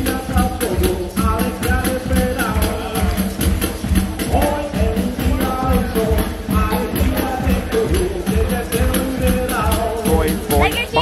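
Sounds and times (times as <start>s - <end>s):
drums keeping quick beat: 0.0s - 11.0s
live band music: 0.0s - 11.0s
person singing: 4.3s - 11.0s.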